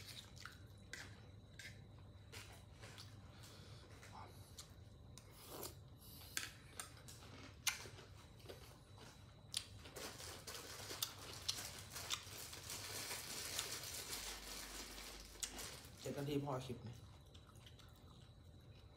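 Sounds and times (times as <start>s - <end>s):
chewing crunchy salad: 0.0s - 16.0s, 16.8s - 18.9s.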